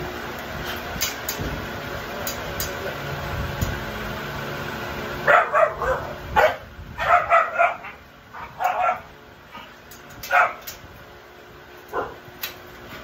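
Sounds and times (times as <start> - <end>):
puppies yipping and barking: 5.3 - 9.1.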